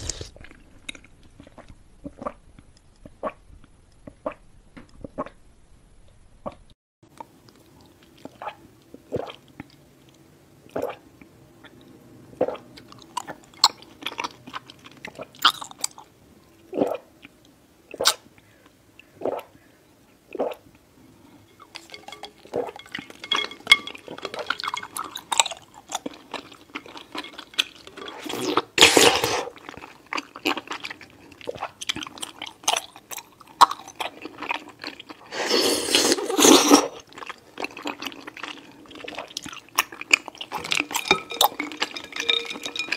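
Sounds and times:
chewing: 0:21.5 - 0:35.3, 0:35.9 - 0:42.9.

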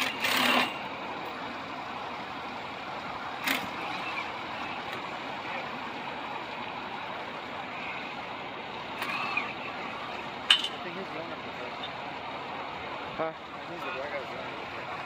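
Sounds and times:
vehicle hum: 0:00.0 - 0:15.0.

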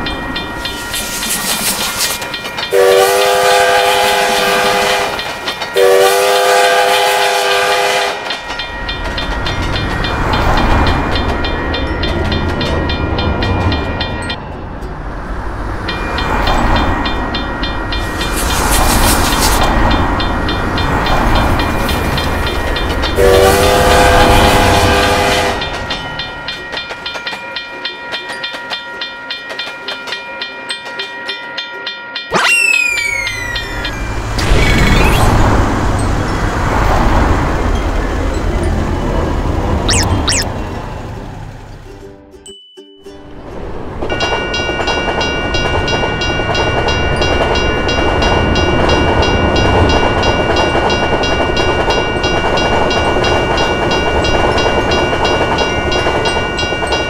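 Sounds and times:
train rumbling over rails: 0:00.0 - 0:31.2, 0:33.0 - 0:39.9, 0:40.5 - 0:42.1, 0:43.4 - 0:57.0
railroad crossing bell ringing: 0:00.0 - 0:34.9, 0:42.5 - 0:57.0
train horn blasts: 0:02.7 - 0:08.3, 0:23.2 - 0:25.8.

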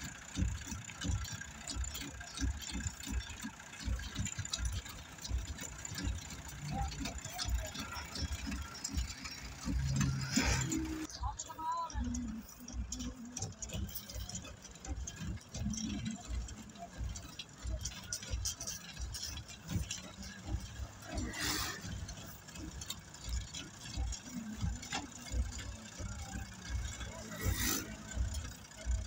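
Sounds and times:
low rumble of roadwork machinery: 0:00.0 - 0:29.0
faint voices: 0:03.8 - 0:29.0
gravel and tool scrapes: 0:21.2 - 0:21.8.

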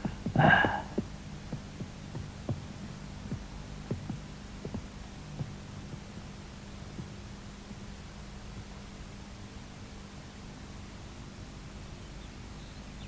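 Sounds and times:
low hum: 0:00.0 - 0:13.0
footsteps on wooden floor: 0:03.9 - 0:04.8.

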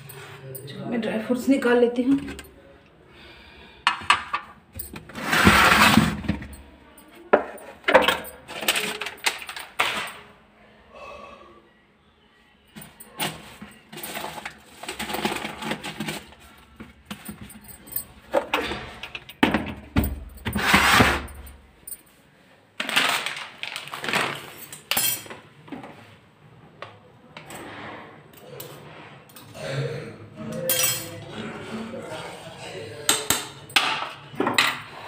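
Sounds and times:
containers clinking and rattling: 0:03.9 - 0:10.2, 0:12.8 - 0:21.6, 0:22.8 - 0:25.4.

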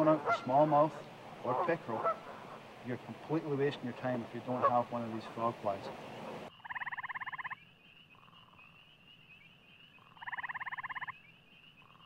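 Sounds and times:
frogs trilling: 0:04.3 - 0:12.0.

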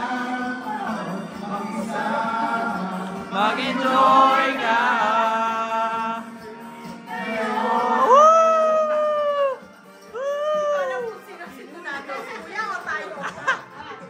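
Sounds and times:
voices singing long notes: 0:00.0 - 0:09.6
music: 0:00.0 - 0:14.0.

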